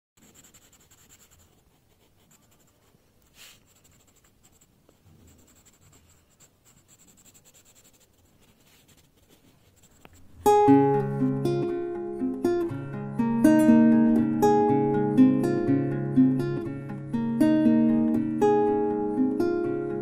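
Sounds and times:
pencil scratching on paper: 0:00.2 - 0:10.4.

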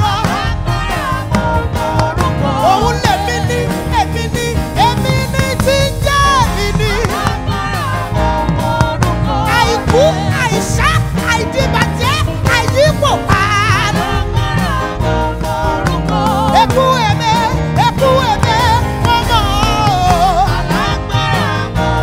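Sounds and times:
instrumental accompaniment: 0:00.0 - 0:22.0
women singing gospel: 0:00.0 - 0:22.0.

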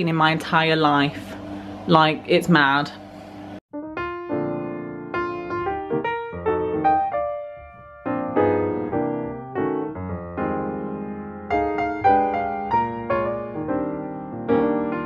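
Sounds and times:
gentle piano music: 0:03.7 - 0:15.0.

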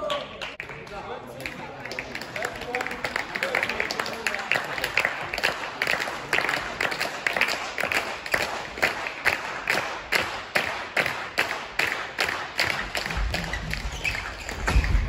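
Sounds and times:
rhythmic clapping: 0:00.0 - 0:15.0.

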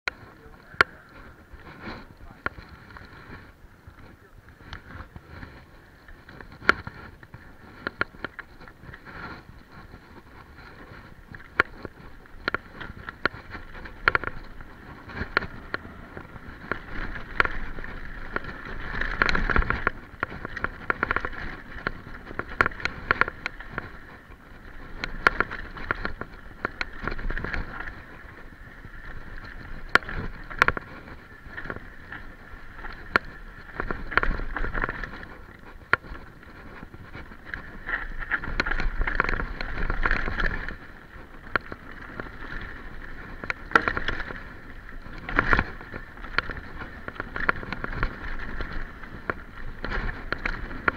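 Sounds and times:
bike tyre and trail noise: 0:00.0 - 0:50.9
bike knocks and rattles: 0:10.3 - 0:50.9.

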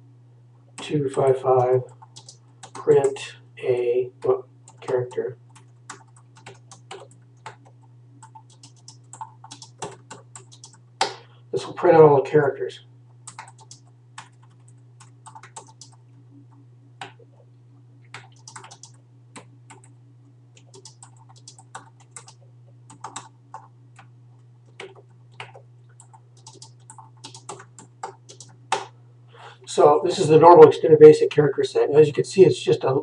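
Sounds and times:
computer keyboard keys clicking: 0:01.6 - 0:03.2, 0:04.7 - 0:10.8, 0:13.3 - 0:16.0, 0:18.1 - 0:19.9, 0:20.6 - 0:24.1, 0:24.7 - 0:28.8.

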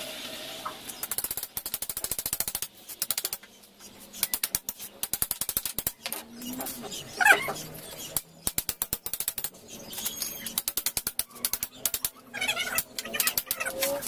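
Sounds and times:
ratchet clicking rapidly: 0:01.0 - 0:03.4, 0:04.2 - 0:06.1, 0:08.2 - 0:14.0.

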